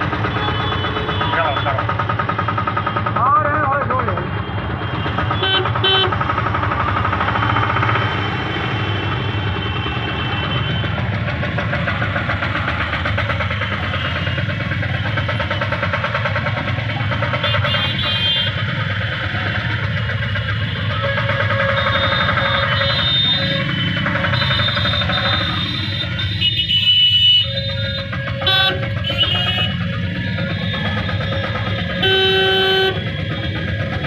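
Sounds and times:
car horns: 0.0 - 1.8, 2.9 - 6.4, 17.1 - 18.9, 20.1 - 33.6
vehicle engine running: 0.0 - 34.0.

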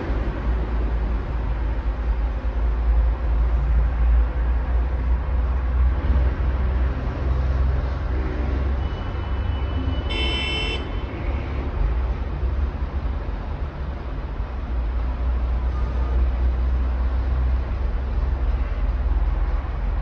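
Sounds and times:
heavy road traffic rumble: 0.0 - 20.0
car horn toot: 10.0 - 11.0.

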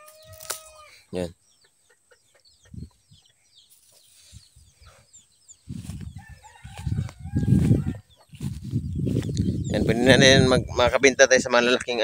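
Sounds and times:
chickens clucking: 0.0 - 12.0
microphone handling rumble: 5.7 - 11.2.

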